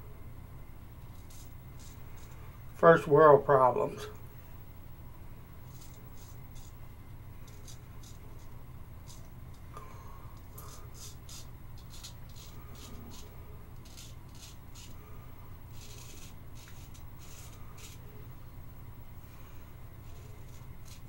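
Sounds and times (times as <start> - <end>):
steady low hum: 0.0 - 21.0
razor scraping stubble: 1.0 - 2.6, 5.6 - 9.6, 10.4 - 15.1, 15.7 - 18.3, 19.9 - 21.0.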